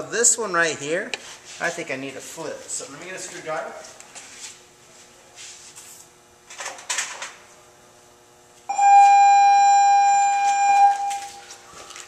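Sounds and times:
loud high beep tone: 8.7s - 11.4s.

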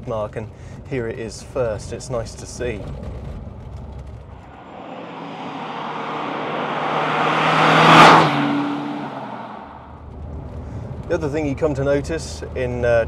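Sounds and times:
car driving past: 4.3s - 10.2s.

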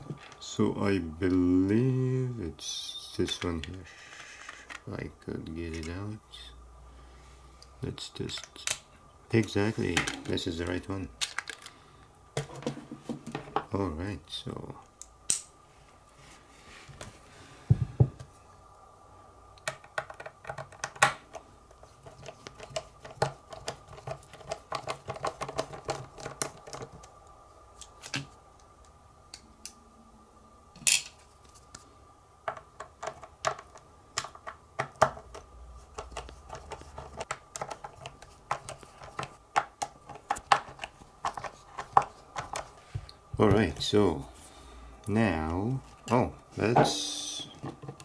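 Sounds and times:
plastic panel parts handled: 32.5s - 42.8s.

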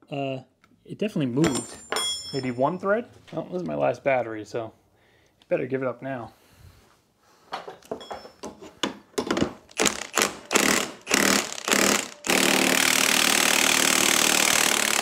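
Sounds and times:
impact wrench hammering: 8.9s - 15.0s.

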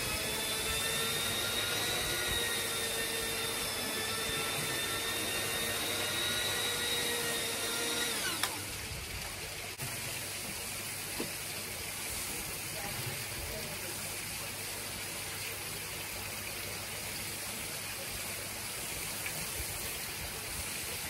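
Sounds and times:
rug shampooer motor whining: 0.0s - 8.9s.

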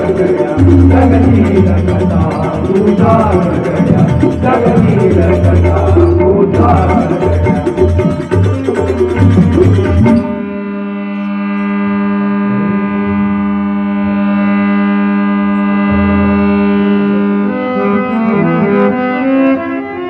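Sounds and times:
drum and cymbal percussion: 0.0s - 11.8s
harmonium chord: 0.0s - 20.0s.

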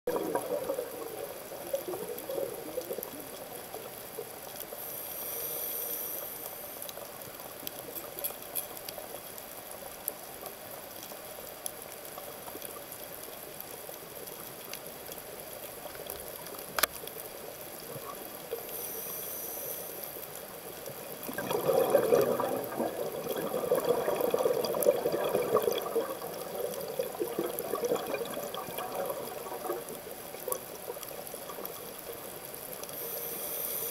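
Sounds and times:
exhaled bubbles gurgling: 0.1s - 4.6s, 20.6s - 33.1s
regulator hissing inhalations: 4.8s - 6.9s, 18.5s - 20.3s, 33.0s - 33.9s.

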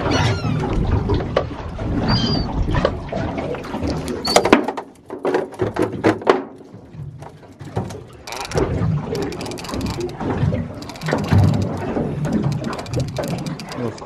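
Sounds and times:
short high squeaks: 2.1s - 2.5s, 4.2s - 4.5s.

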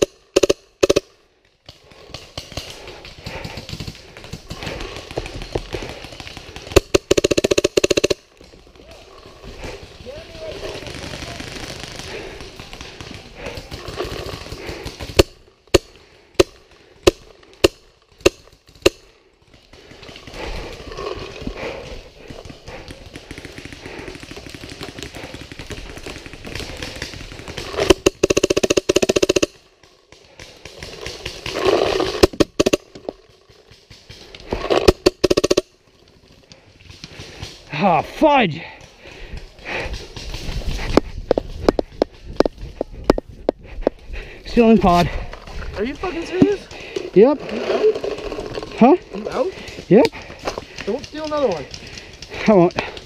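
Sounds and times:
paintball gun shots: 0.0s - 1.1s, 1.8s - 8.3s, 10.3s - 20.5s, 22.3s - 35.7s
rapid rattling pops: 0.0s - 8.8s, 9.4s - 38.0s, 38.6s - 53.0s.

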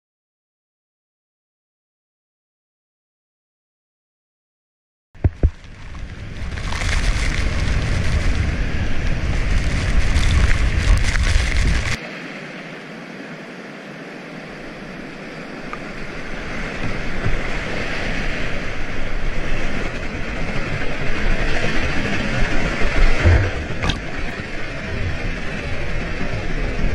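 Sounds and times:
wind buffeting microphone: 5.2s - 12.0s, 14.5s - 26.9s
river current rushing: 5.2s - 26.9s.

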